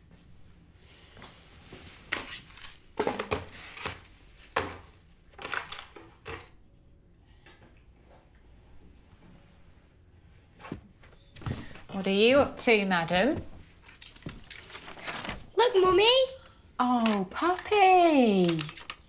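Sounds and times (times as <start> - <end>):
toys clattering into plastic basket: 5.4 - 6.4.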